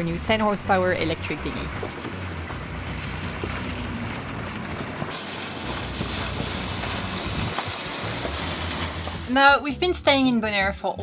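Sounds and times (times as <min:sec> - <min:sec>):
wind buffeting microphone: 0:00.0 - 0:09.2
water rushing past boat hull: 0:00.0 - 0:09.6.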